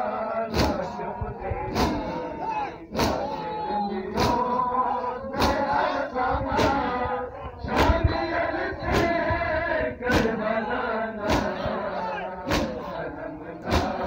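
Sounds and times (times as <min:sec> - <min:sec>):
men chanting in unison: 0:00.0 - 0:14.0
hands slapping chests: 0:00.5 - 0:00.8, 0:11.2 - 0:11.6.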